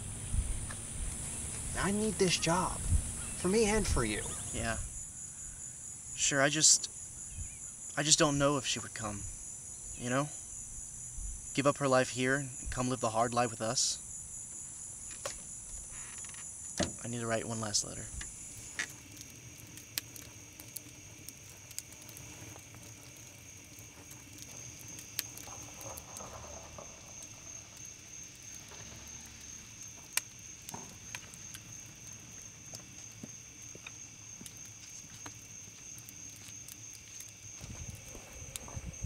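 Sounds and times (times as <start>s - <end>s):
fire pops: 0.0s - 11.6s, 12.5s - 39.0s
night insects droning: 0.0s - 39.0s
wood fire crackling: 0.0s - 39.0s.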